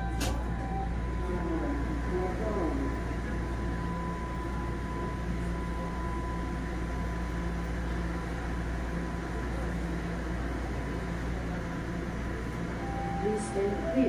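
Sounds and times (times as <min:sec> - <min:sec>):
subway car ventilation hum: 0:00.0 - 0:14.0.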